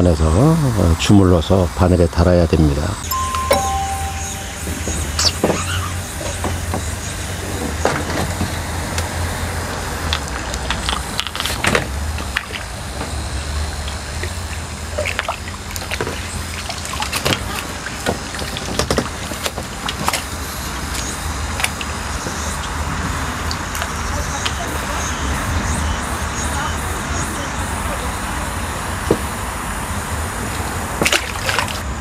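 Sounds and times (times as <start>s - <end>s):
fish splashing at water surface: 31.0s - 31.9s.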